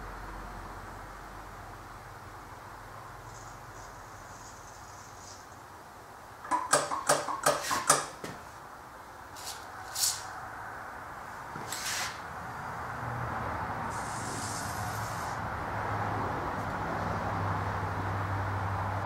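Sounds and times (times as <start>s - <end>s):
sharp clicks of engine parts: 6.4s - 8.2s
aerosol spray hissing: 13.9s - 15.4s.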